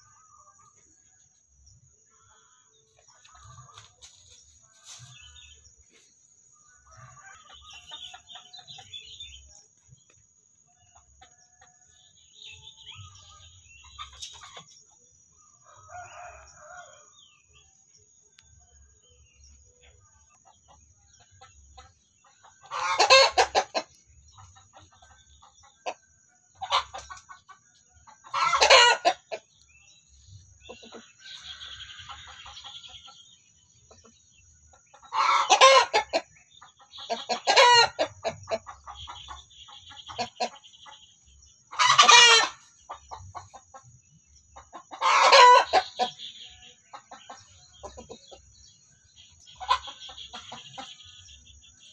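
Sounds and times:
hens clucking softly: 0:13.8 - 0:15.0, 0:19.8 - 0:29.8, 0:30.4 - 0:51.9.

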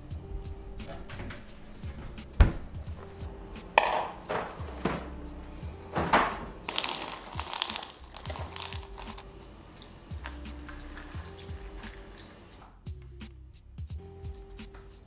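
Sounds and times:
soft background music: 0:00.0 - 0:15.0
cereal box and plastic bag crinkling: 0:06.7 - 0:09.2.

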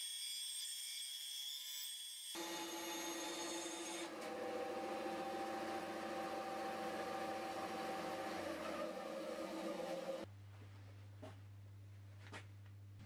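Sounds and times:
bandsaw cutting wood: 0:02.4 - 0:10.3.

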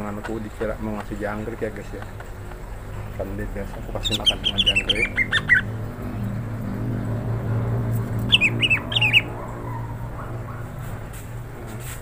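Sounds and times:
steady low hum: 0:00.0 - 0:12.0
bird giving falling chirps: 0:04.0 - 0:05.7, 0:08.2 - 0:09.4.

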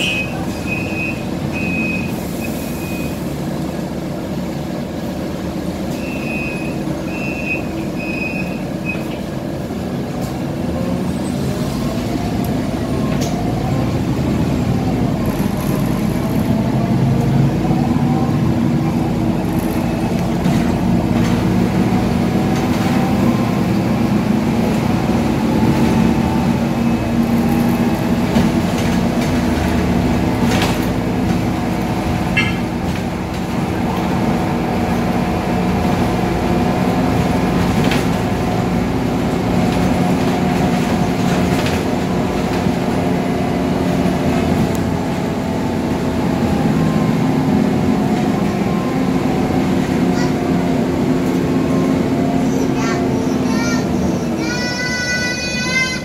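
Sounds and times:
bus diesel engine drone: 0:00.0 - 0:56.0.

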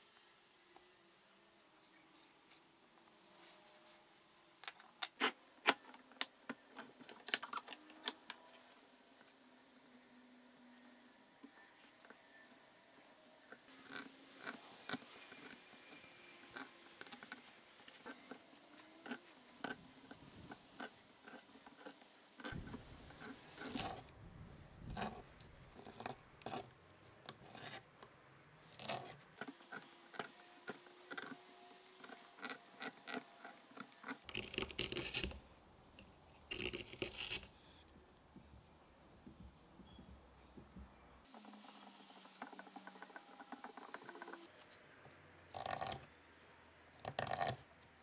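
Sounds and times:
gouge scraping wood: 0:19.0 - 0:24.1, 0:24.9 - 0:26.7.

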